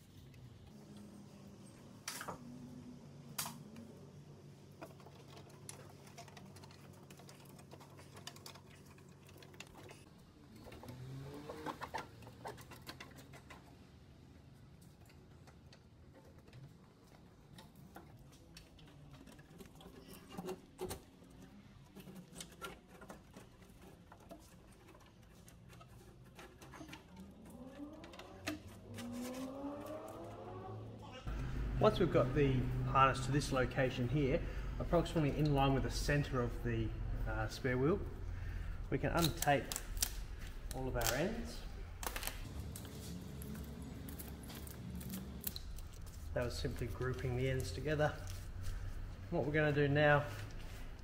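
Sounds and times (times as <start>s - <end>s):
clicks and rattles of wiring: 3.3s - 30.4s, 38.4s - 51.0s
steady low hum: 30.6s - 51.0s.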